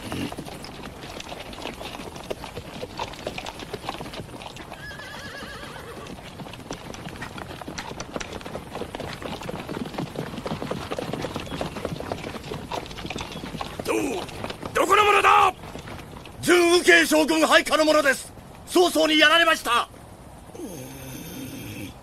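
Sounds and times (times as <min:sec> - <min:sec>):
horse whinnying: 0:00.0 - 0:00.7, 0:04.4 - 0:06.4
horse hooves clip-clopping: 0:00.0 - 0:19.3.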